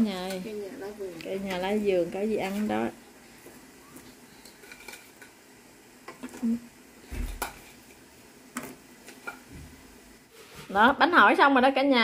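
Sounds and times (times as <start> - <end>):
dishes and utensils clinking: 4.4 - 5.4.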